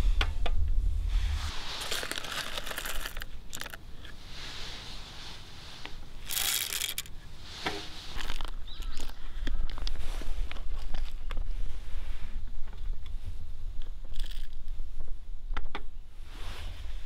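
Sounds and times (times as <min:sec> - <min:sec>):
coffee beans rattling onto metal: 0:01.8 - 0:03.8, 0:06.2 - 0:07.1, 0:14.1 - 0:14.5.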